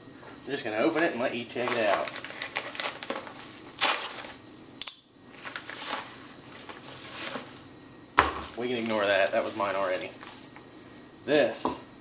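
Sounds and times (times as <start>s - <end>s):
paper mailer tearing and crinkling: 0.8s - 4.4s, 5.3s - 7.6s, 8.4s - 10.5s.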